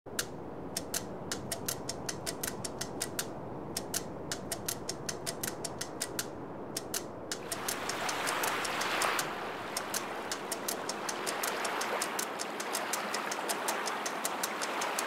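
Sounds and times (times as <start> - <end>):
sharp clicks: 0.1 - 15.0.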